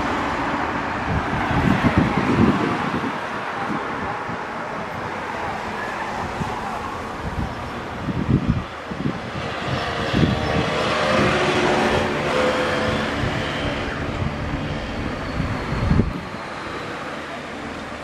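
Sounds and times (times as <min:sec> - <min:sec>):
wind buffeting microphone: 0:00.7 - 0:16.8
large vehicle passing: 0:05.4 - 0:18.0.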